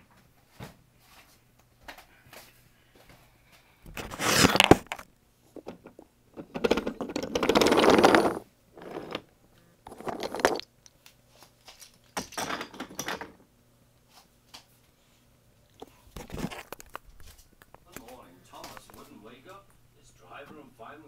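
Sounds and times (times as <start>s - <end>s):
rustling and scraping: 3.9s - 9.3s, 9.9s - 10.7s, 15.8s - 19.2s.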